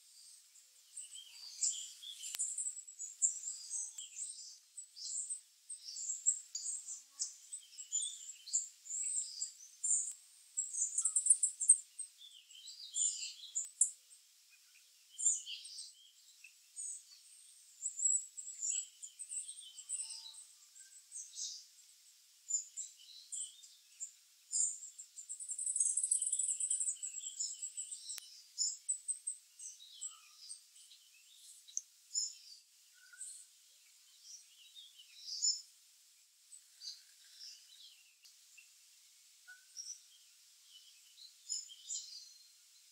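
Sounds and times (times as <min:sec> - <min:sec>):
small songbirds chirping: 0:00.0 - 0:42.9
bird trill: 0:10.6 - 0:11.8, 0:25.4 - 0:29.0.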